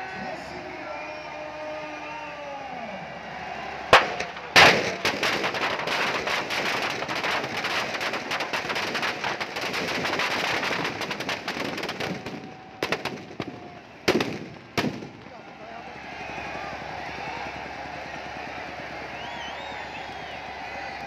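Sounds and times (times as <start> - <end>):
firecracker bangs: 3.9 - 15.6
rapid firecracker crackle: 3.9 - 16.8.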